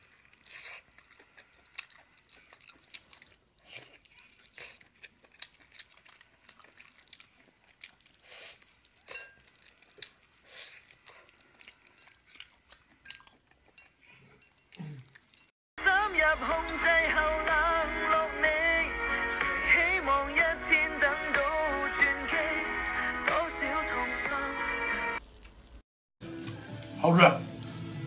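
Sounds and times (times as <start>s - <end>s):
wet chewing and mouth smacks: 0.0s - 15.5s, 25.2s - 28.0s
meat being torn by hand: 25.2s - 28.0s.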